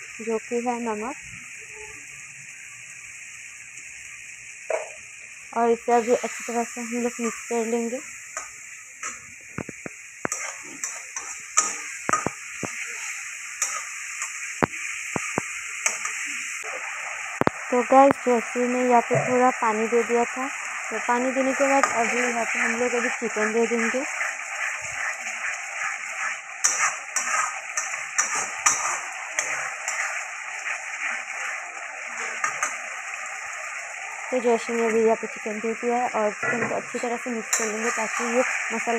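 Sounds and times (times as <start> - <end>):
frying sizzle: 0.0 - 38.9
spatula scraping a pan: 8.3 - 12.8, 13.6 - 14.4, 21.7 - 31.6, 36.4 - 38.9.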